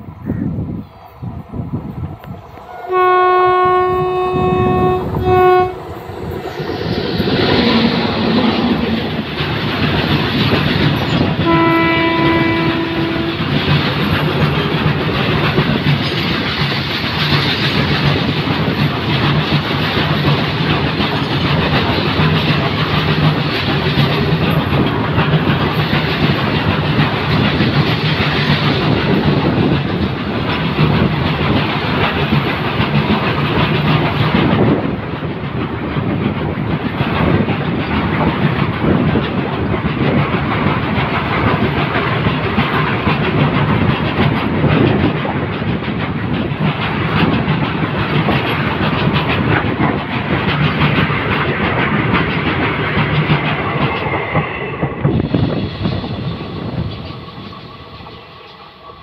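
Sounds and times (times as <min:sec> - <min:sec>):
train rumbling past: 0:00.0 - 0:59.0
wheels clacking over rail joints: 0:02.2 - 0:55.4
locomotive horn blasts: 0:02.6 - 0:06.0, 0:11.4 - 0:13.6.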